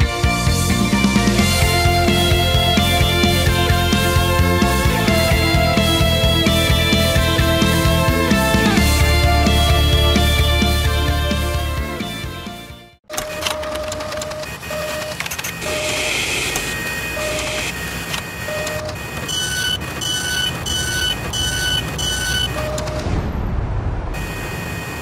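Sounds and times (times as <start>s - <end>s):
mechanical whirring and clicking: 13.1s - 23.1s.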